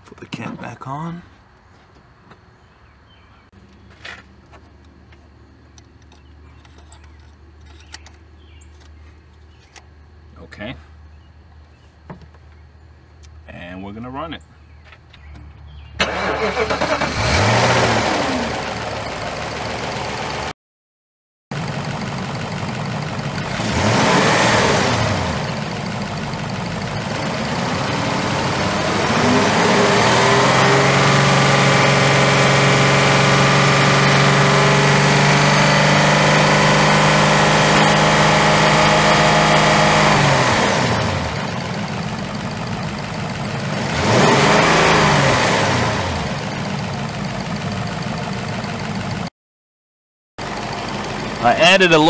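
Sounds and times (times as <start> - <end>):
car engine starting and revving: 15.7 - 20.5, 21.6 - 49.3.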